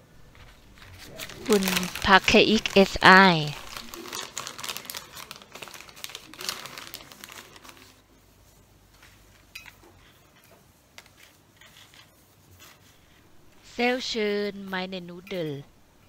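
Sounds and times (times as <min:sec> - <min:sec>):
plastic zip bag crinkling: 0:00.1 - 0:08.4.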